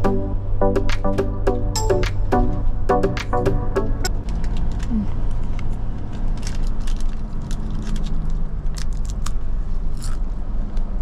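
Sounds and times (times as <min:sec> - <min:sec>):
bus interior rumble: 0:04.0 - 0:11.0.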